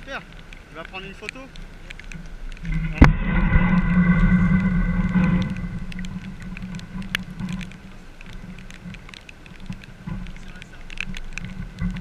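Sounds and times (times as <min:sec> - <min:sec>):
raindrops tapping on camera: 0:00.0 - 0:12.0
steady low hum: 0:01.8 - 0:09.0.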